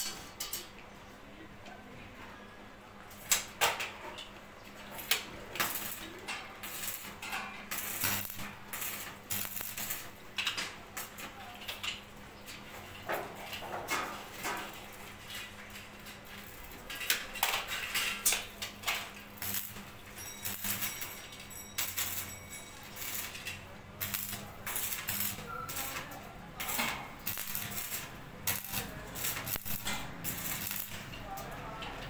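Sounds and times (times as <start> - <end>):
arc welding crackling: 4.9 - 32.0
metallic clinks: 19.4 - 23.6.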